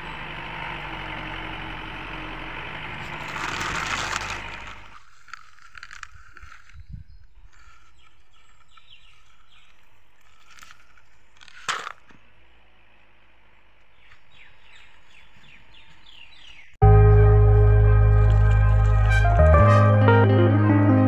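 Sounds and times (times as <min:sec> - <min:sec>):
small scrapes and knocks: 0:03.0 - 0:12.2
gravel spilling from toy truck: 0:03.1 - 0:06.6
faint birds chirping: 0:06.5 - 0:11.5, 0:12.2 - 0:16.8.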